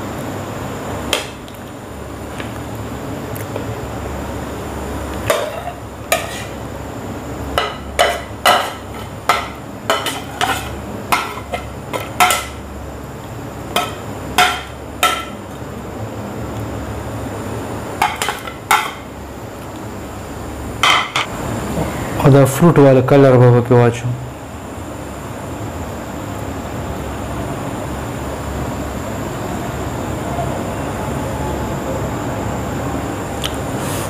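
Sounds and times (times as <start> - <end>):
steady low hum: 0.0 - 34.0
spoon scraping on plate and pot: 5.3 - 6.6, 7.6 - 12.6.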